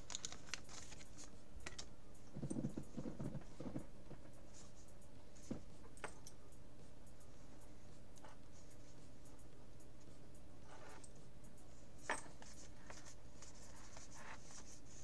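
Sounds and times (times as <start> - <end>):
cards and plastic sleeves rustling: 0.0 - 1.9.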